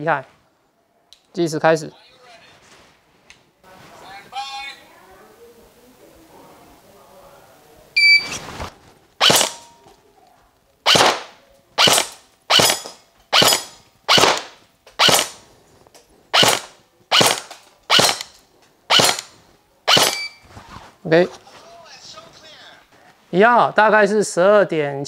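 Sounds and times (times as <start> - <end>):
shot timer beep: 8.0 - 8.4, 19.9 - 20.4
airsoft rifle single shots: 9.2 - 9.7, 10.9 - 15.4, 16.4 - 19.3, 19.9 - 20.3.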